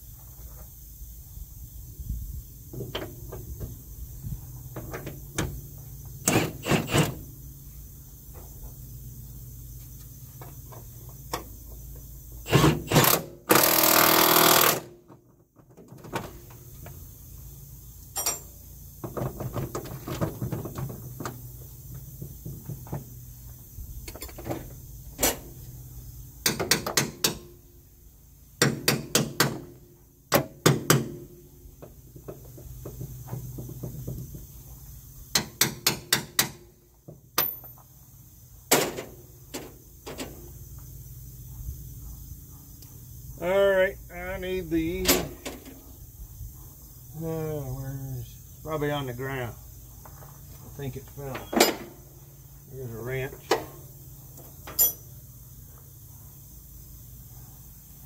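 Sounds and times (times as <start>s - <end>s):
metal hand tools clinking: 18.1s - 18.5s, 54.7s - 55.1s.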